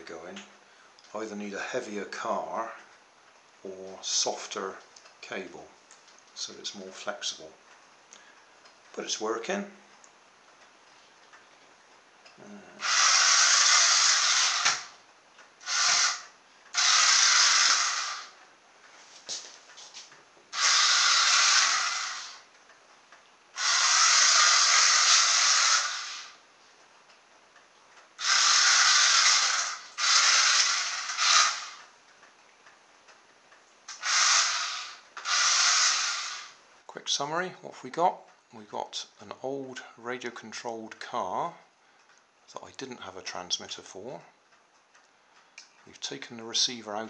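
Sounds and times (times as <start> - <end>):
toy car electric motors whirring: 12.8 - 15.0, 15.6 - 18.4, 20.5 - 22.5, 23.6 - 26.4, 28.2 - 31.9, 33.9 - 36.6.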